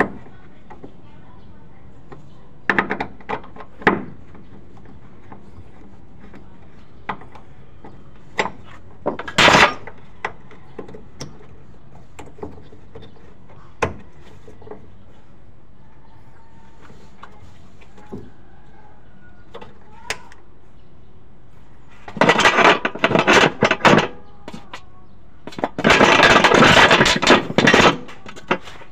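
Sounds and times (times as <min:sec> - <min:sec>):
hand tools clicking and knocking: 0:02.1 - 0:14.9, 0:22.0 - 0:24.8, 0:25.4 - 0:28.9
metal clatter: 0:07.9 - 0:11.4, 0:22.0 - 0:24.7, 0:25.5 - 0:28.9.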